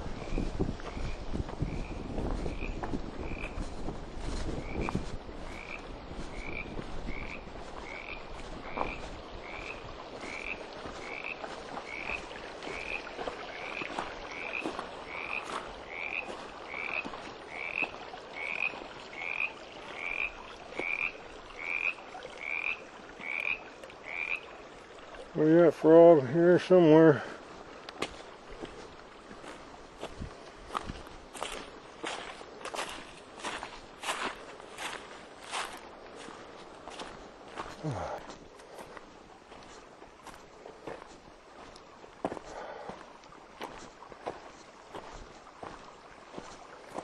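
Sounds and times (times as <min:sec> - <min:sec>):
frog calling: 0:00.2 - 0:03.6, 0:04.6 - 0:25.4.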